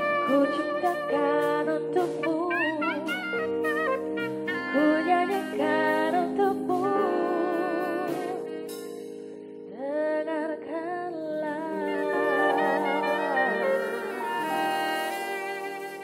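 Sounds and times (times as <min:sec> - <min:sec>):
saxophone: 0:00.0 - 0:08.4, 0:11.4 - 0:16.0
bass: 0:00.0 - 0:16.0
keyboard chords: 0:00.0 - 0:16.0
drum and cymbal hits: 0:08.1 - 0:09.2
person singing with vibrato: 0:09.8 - 0:16.0.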